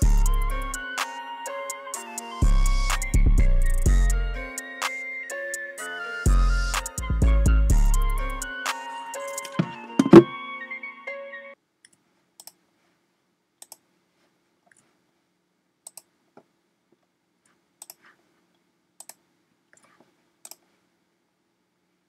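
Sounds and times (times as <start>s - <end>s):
computer mouse clicks: 11.8s - 12.6s, 13.6s - 13.9s, 15.8s - 16.1s, 17.8s - 18.2s, 19.0s - 20.7s.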